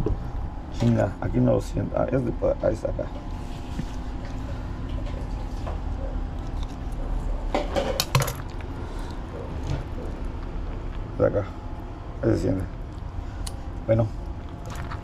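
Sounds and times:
steady low rumble: 0.0 - 7.6.

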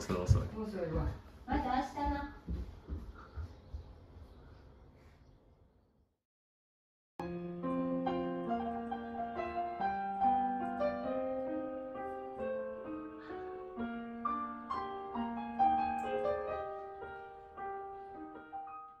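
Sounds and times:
gentle piano melody: 7.2 - 19.0.

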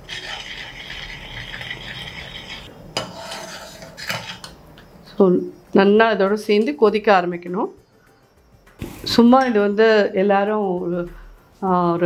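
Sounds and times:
spoon stirring and scraping in pot: 0.0 - 4.6.

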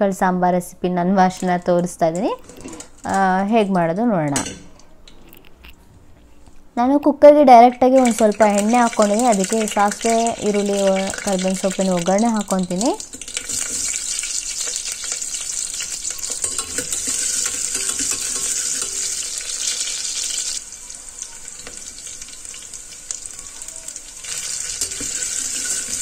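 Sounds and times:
ladle clinking and scraping pot: 2.3 - 3.4, 13.1 - 20.0, 24.3 - 26.0
onion sizzling in hot oil: 7.5 - 26.0.

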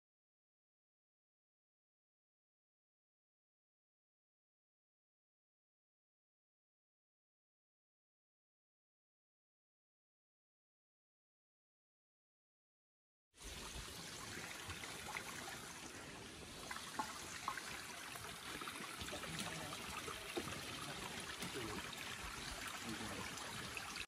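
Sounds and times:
stream water running over rocks: 13.4 - 24.0.

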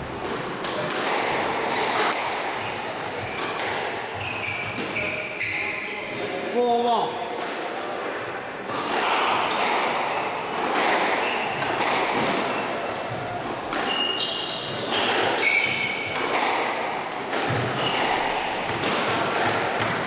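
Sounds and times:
squash ball thudding: 0.0 - 5.0, 8.7 - 20.0
shoes squeaking on floor: 1.6 - 6.1, 9.4 - 16.2, 17.5 - 18.8.

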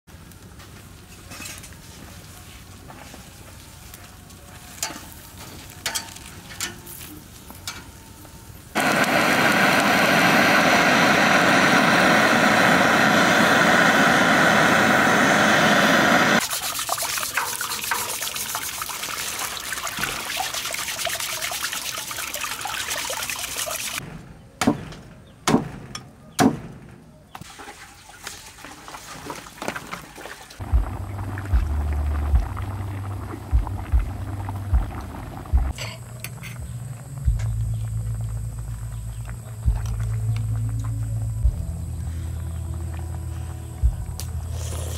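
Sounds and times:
open fire crackling: 0.1 - 16.5, 30.6 - 44.9
blowtorch hissing: 8.8 - 16.4, 44.4 - 44.9.

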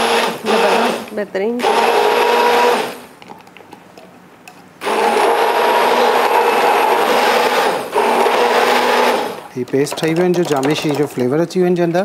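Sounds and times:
electric hand blender running: 0.0 - 3.0, 4.8 - 9.4.

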